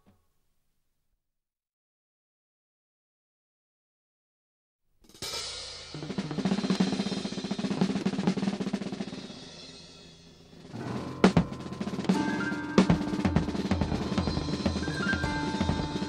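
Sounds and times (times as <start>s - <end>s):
drum roll on a kit: 5.2s - 16.0s
low instrumental notes: 10.4s - 16.0s
sharp drum hits: 10.6s - 16.0s.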